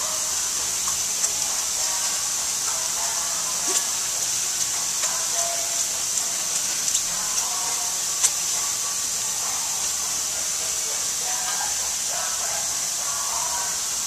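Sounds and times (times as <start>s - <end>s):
steady high-pitched hiss: 0.0s - 14.0s.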